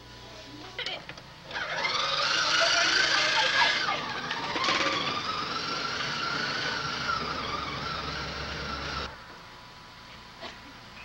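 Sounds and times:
toy car electric motor whining: 1.5s - 9.2s.

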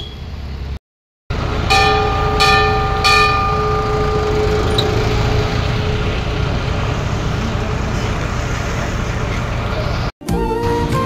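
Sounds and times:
bus engine rumble: 0.0s - 10.1s
metal bell ringing: 1.6s - 6.2s.

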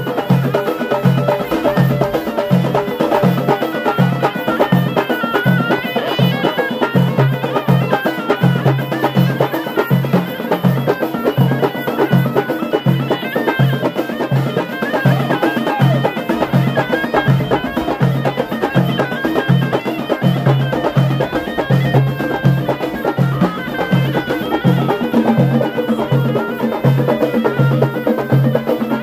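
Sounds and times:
frame drums beat: 0.0s - 29.0s
nasal reed pipe melody: 0.0s - 29.0s.

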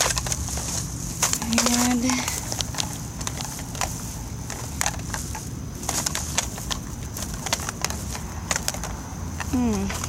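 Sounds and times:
low background rumble: 0.0s - 10.0s
scrap metal clicking in plastic bag: 0.0s - 10.0s.

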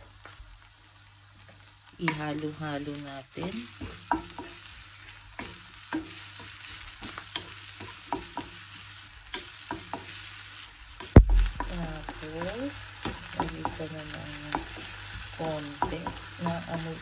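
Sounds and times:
onion and garlic sizzling in oil: 0.0s - 17.0s
spatula clicking against pan: 5.4s - 8.6s, 9.3s - 10.2s
loud thump: 11.2s - 11.7s.

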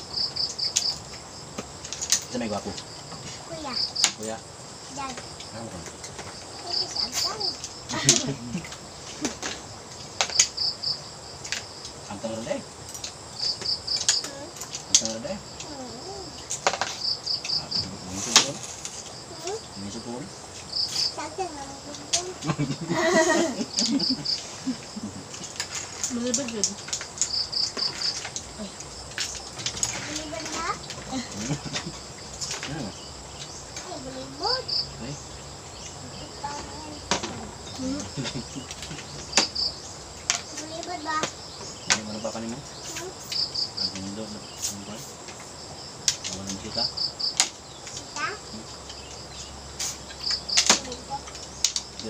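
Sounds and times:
insect chirping: 0.0s - 52.0s
low voices: 2.3s - 9.6s, 17.5s - 20.3s, 20.9s - 26.8s, 29.9s - 33.0s, 36.0s - 39.4s, 41.9s - 45.3s, 46.2s - 46.9s
faint voices: 17.5s - 20.3s, 29.8s - 33.0s, 36.0s - 39.4s, 41.9s - 45.2s.

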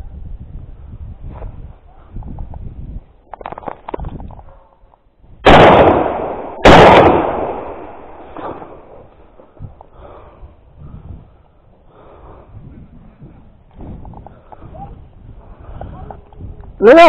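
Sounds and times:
rifle shots with echo: 5.4s - 9.1s.

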